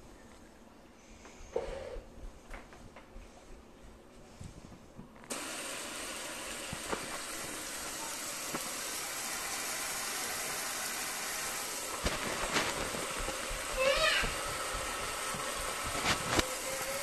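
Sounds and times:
faucet water running into sink: 0:05.3 - 0:17.0.

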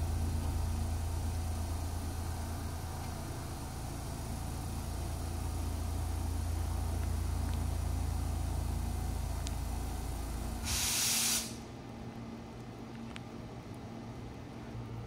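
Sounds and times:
cooling blowers humming: 0:00.0 - 0:15.0
loud hiss: 0:10.6 - 0:11.7.

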